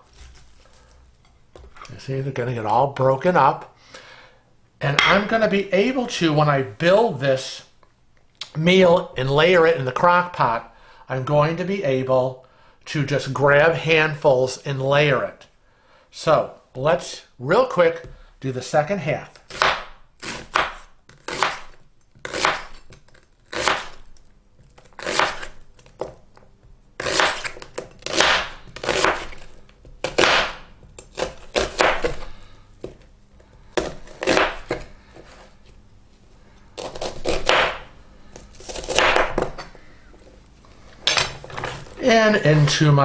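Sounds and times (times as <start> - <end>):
knife slicing onion on cutting board: 19.4 - 24.1, 24.8 - 26.2, 27.0 - 33.0, 33.7 - 35.5, 36.8 - 39.6.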